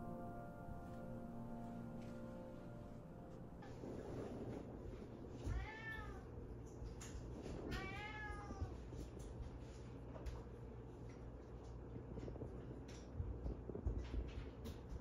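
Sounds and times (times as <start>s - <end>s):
cat meowing: 5.4s - 6.4s, 7.7s - 8.8s.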